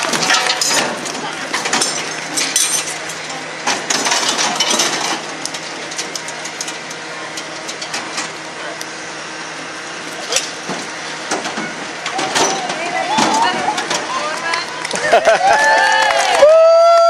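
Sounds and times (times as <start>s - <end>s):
crowd noise: 0.0s - 17.0s
metal tools clinking and clanking: 0.1s - 6.8s.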